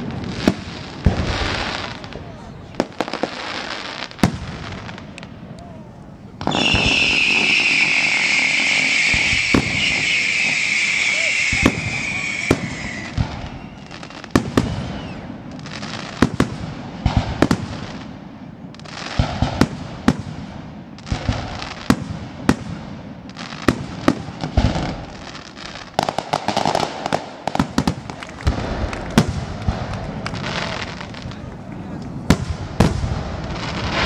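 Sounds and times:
firework crackle hissing: 0.0s - 5.6s, 6.4s - 31.5s, 32.1s - 34.0s
falling firework whistle: 6.4s - 16.4s
firework shells bursting: 6.4s - 16.5s.

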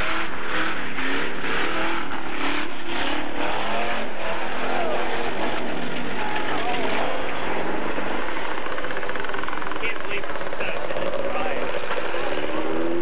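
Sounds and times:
off-road vehicle engine revving: 0.0s - 13.0s
steady noisy rush: 6.0s - 13.0s.

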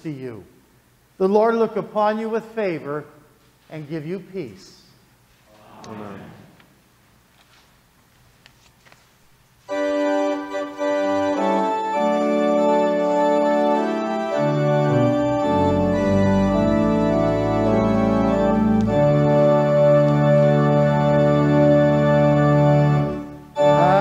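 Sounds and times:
church organ chords: 9.6s - 24.0s
deep organ pedal bass notes: 9.7s - 24.0s.

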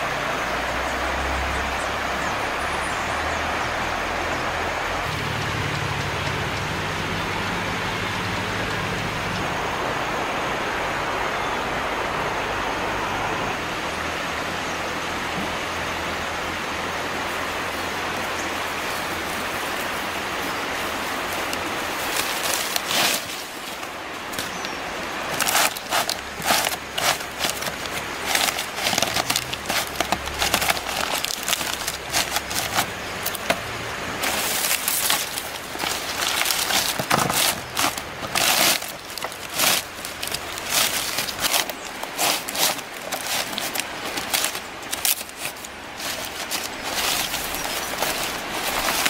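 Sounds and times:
palm leaves rustling and crackling: 13.6s - 49.0s.

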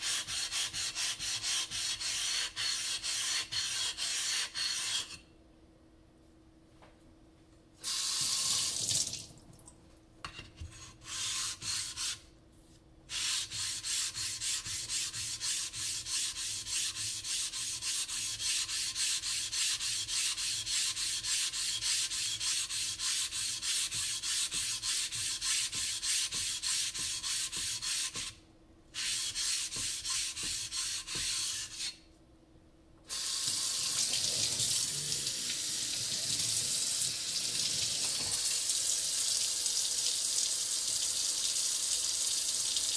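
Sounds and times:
tap running water: 8.1s - 9.7s, 33.2s - 42.9s.

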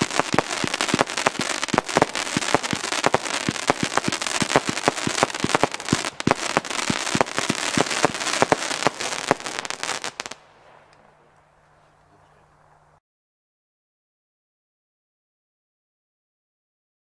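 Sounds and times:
fireworks battery firing: 0.0s - 11.0s
fireworks crackling: 0.0s - 11.1s
faint low hum: 10.5s - 13.0s.

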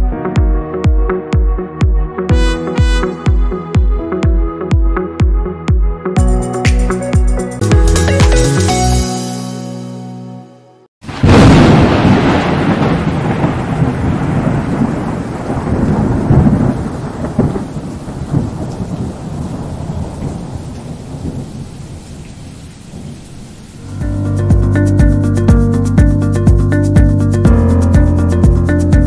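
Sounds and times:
heavy rain: 11.0s - 24.2s
thunder rumbling: 11.0s - 24.2s.

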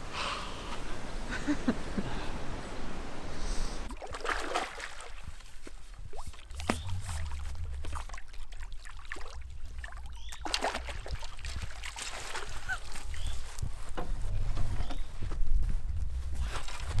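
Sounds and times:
fish splashing in water: 3.9s - 13.4s.

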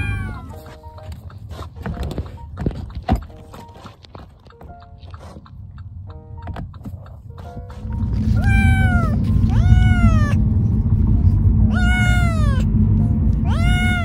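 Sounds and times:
kitten meowing: 0.0s - 1.0s, 7.7s - 10.4s, 11.6s - 12.7s, 13.4s - 14.0s
low car rumble: 0.0s - 14.0s.

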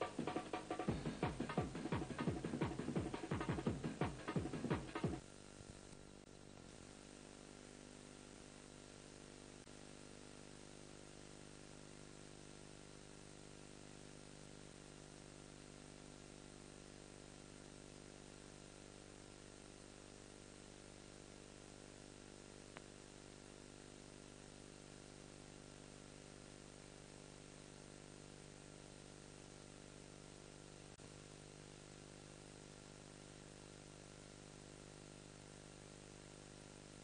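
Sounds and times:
low hum and hiss: 0.0s - 37.0s
faint click: 22.7s - 22.9s.

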